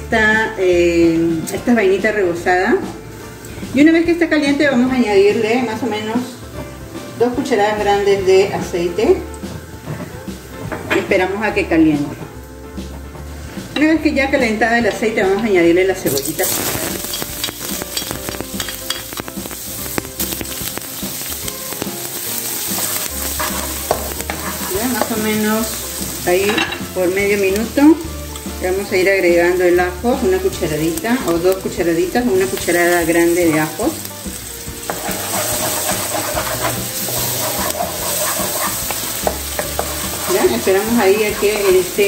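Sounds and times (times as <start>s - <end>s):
onion sizzling in hot oil: 0.0s - 11.6s, 12.4s - 42.0s
wooden spoon stirring: 22.6s - 26.7s, 34.7s - 42.0s.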